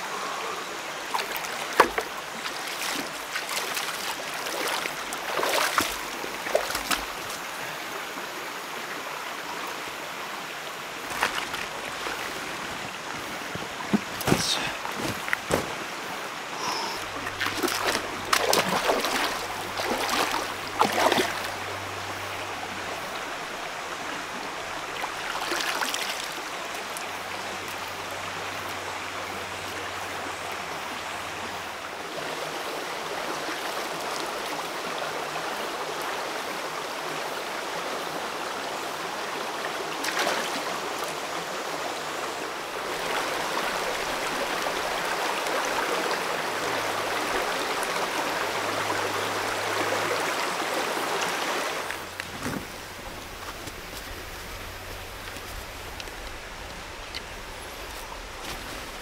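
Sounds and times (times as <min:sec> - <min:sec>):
rocky stream flowing: 0:00.0 - 0:59.0
splashes of wading: 0:01.0 - 0:07.6, 0:10.8 - 0:23.6, 0:24.7 - 0:27.2, 0:39.9 - 0:41.2, 0:42.7 - 0:59.0.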